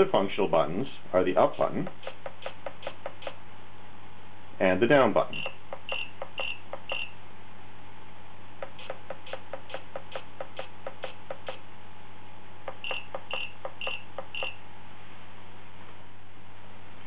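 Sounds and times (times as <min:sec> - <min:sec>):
short electronic beeps: 0:05.3 - 0:07.2, 0:12.7 - 0:14.6.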